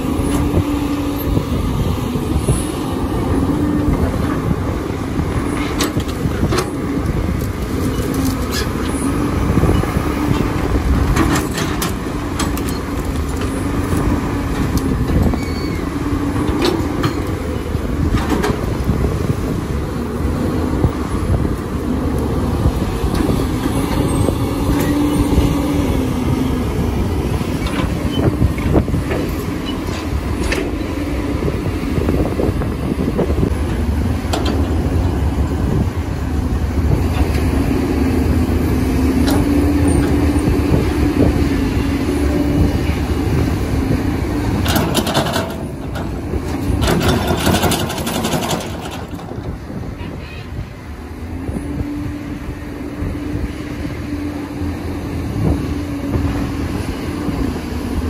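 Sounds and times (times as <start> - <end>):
diesel engines running: 0.0 - 58.0
clatter: 44.6 - 49.3.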